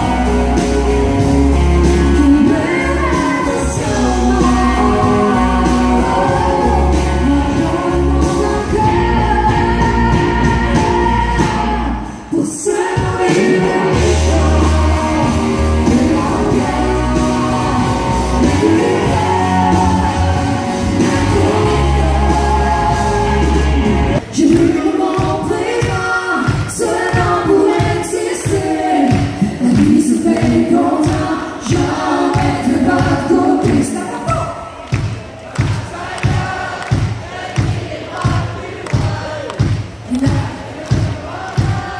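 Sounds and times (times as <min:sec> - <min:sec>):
acoustic and electric guitars: 0:00.0 - 0:25.7
person singing: 0:00.0 - 0:34.7
drums: 0:00.0 - 0:41.9.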